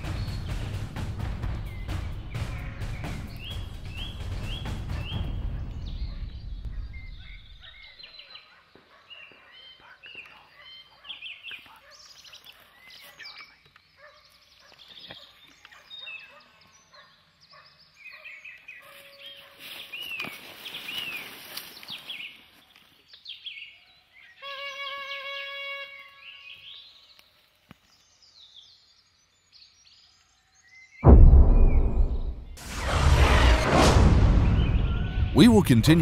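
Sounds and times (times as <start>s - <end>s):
distant dogs yelping and baying: 7.6s - 13.2s, 14.0s - 19.7s.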